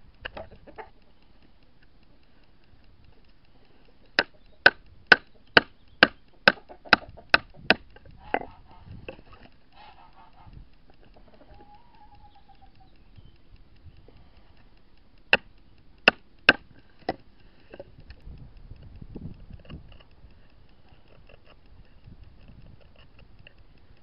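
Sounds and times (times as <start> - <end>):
wooden mallet striking a knife: 4.2 - 8.4.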